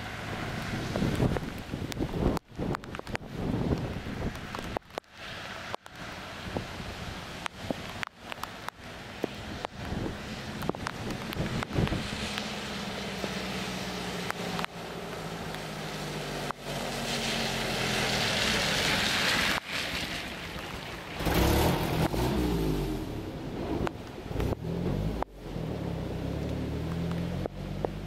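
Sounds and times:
rain and floodwater rushing: 0.0 - 28.0
engine humming: 7.3 - 19.6, 20.2 - 28.0.

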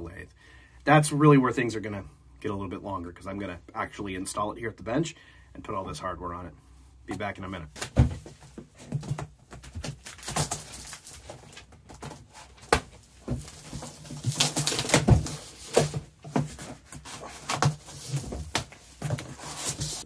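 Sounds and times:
cardboard flaps rustling: 7.7 - 20.0.

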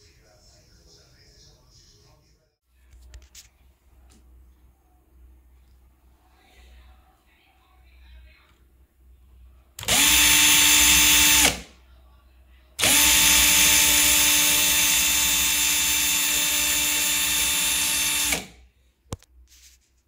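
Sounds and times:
cordless drill motor running: 9.8 - 11.7, 12.8 - 18.6.

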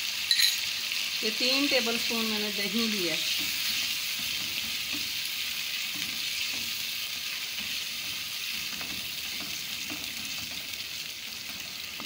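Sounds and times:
food sizzling in a pan: 0.0 - 12.0
spatula scraping a pan: 3.3 - 12.0.

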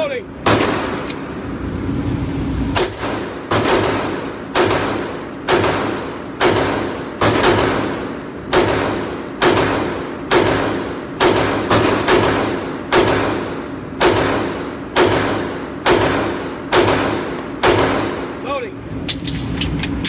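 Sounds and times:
pistol shots echoing indoors: 2.8 - 18.4.

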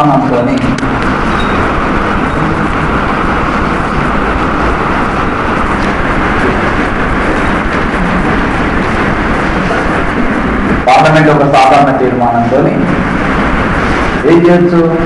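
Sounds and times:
loud rushing noise: 0.0 - 15.0.

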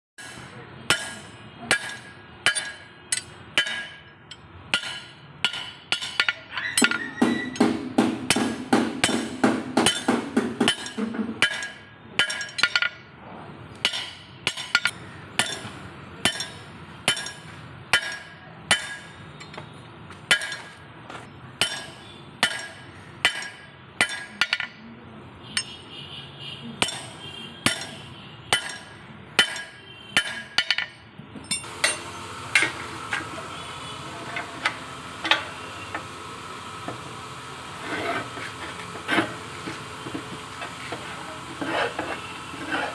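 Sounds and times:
hammer striking iron bar: 0.2 - 13.1, 13.8 - 19.6, 20.3 - 20.8, 21.6 - 24.8, 25.6 - 25.8, 26.8 - 32.8.

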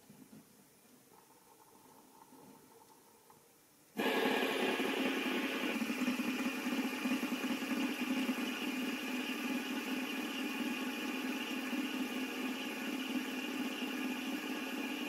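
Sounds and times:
fidget spinner whirring: 4.0 - 15.0.

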